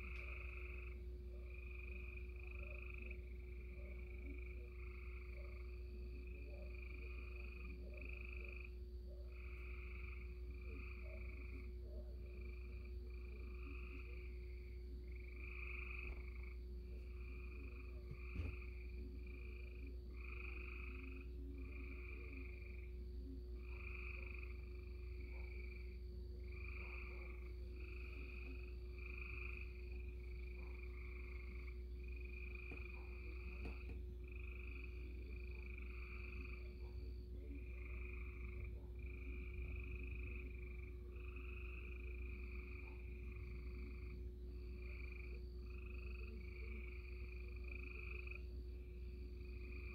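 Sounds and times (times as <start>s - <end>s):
chorus of frogs calling: 0.0s - 49.9s
steady low hum: 0.0s - 49.9s.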